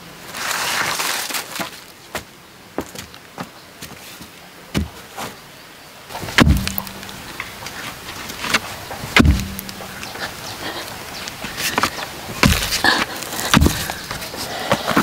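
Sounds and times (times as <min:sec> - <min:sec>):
pole thudding into dirt: 0:06.1 - 0:07.7, 0:08.4 - 0:10.1, 0:11.8 - 0:12.8, 0:13.5 - 0:14.2
small knocks: 0:06.1 - 0:10.2, 0:11.2 - 0:15.0
soil scattering: 0:06.1 - 0:15.0.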